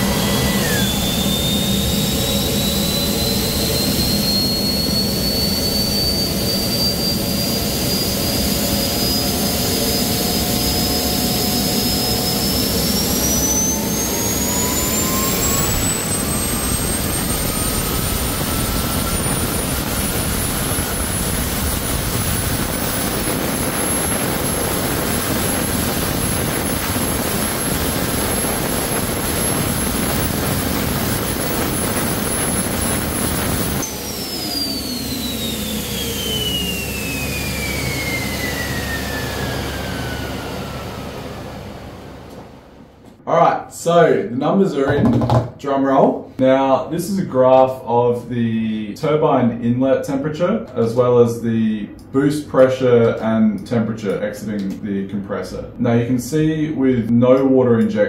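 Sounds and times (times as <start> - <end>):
electric leaf blower blowing: 0.0 - 42.6
turbojet engine turbine whine: 0.0 - 45.0.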